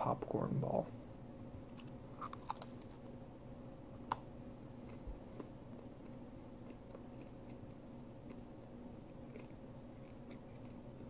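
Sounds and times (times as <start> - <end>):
crunchy bacon being chewed: 1.7 - 3.1, 4.0 - 11.0.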